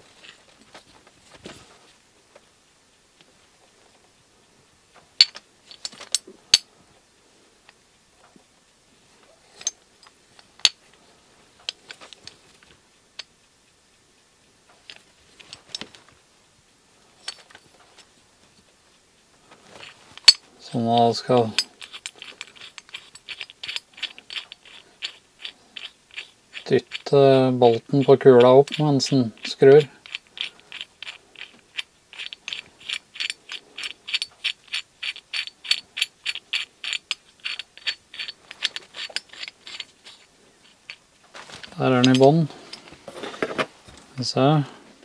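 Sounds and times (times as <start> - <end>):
bolt screwing ticks: 27.7 - 41.0
metal clicks and knocks: 28.0 - 42.8.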